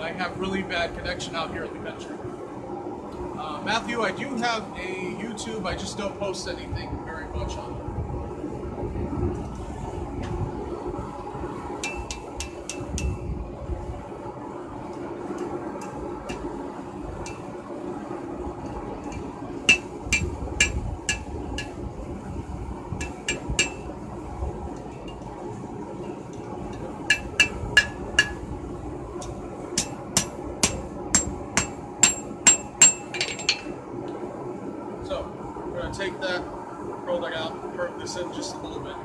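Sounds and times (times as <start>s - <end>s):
steady hum: 0.0s - 39.0s
hammer striking steel on anvil: 11.8s - 13.2s, 19.1s - 21.8s, 23.0s - 23.8s, 27.1s - 28.4s, 29.8s - 33.7s.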